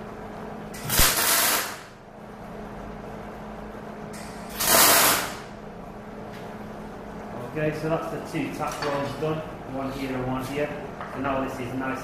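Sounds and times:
welding arc bursts: 0.8s - 1.9s, 4.5s - 5.5s.

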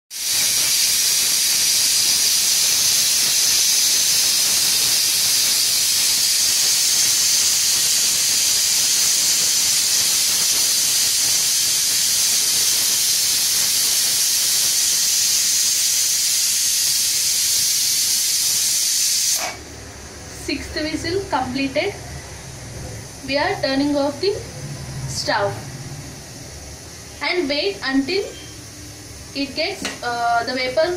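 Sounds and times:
pressure cooker whistling: 0.1s - 19.7s, 27.6s - 29.7s.

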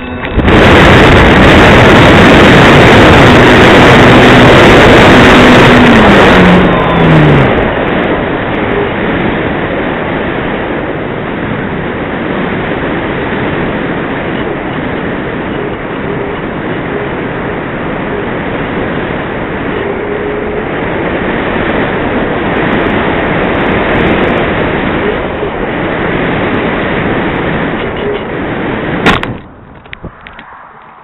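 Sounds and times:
wind rushing: 0.0s - 27.8s, 28.4s - 31.0s
electric motor and propeller whine: 0.0s - 31.0s.

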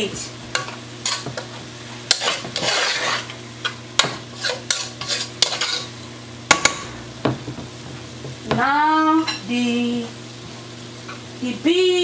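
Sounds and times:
vegetables sizzling: 0.0s - 12.0s
spoon scraping and knocking pot: 2.1s - 5.9s.

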